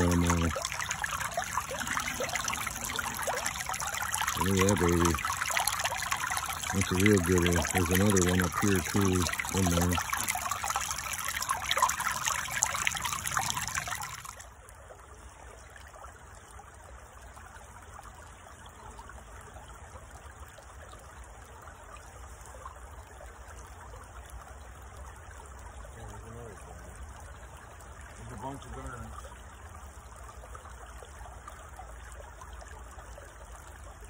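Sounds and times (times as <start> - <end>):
water rushing over sluice riffles: 0.0 - 14.6
creek water running: 0.0 - 34.0.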